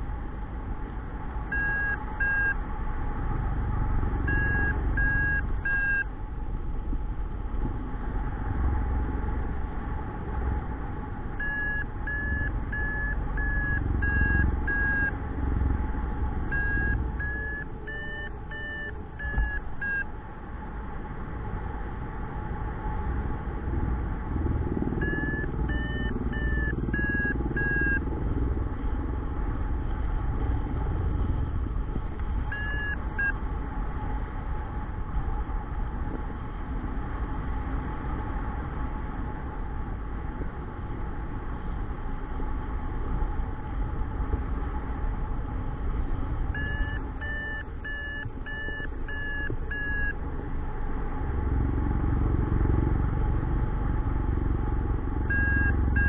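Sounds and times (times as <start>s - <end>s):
variometer beeping: 1.4s - 2.6s, 4.2s - 6.1s, 11.3s - 15.2s, 16.4s - 20.2s, 24.9s - 28.0s, 32.5s - 33.4s, 46.5s - 50.5s, 55.2s - 56.0s.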